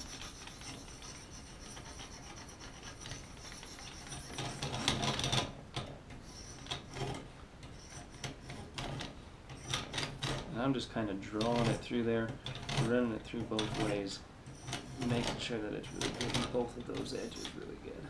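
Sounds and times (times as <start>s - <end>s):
sharpening stone scraping knife blade: 0.0s - 4.8s, 17.0s - 17.6s.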